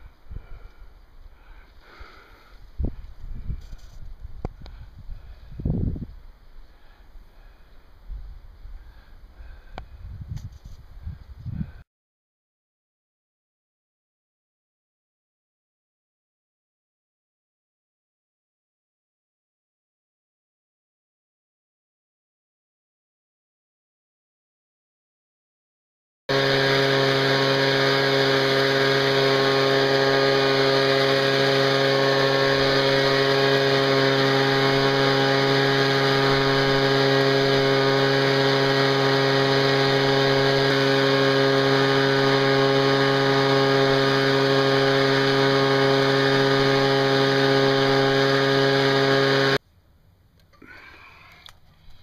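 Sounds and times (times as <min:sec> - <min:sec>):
leaf blower running: 0:00.0 - 0:11.8, 0:26.3 - 0:49.6, 0:50.6 - 0:52.0.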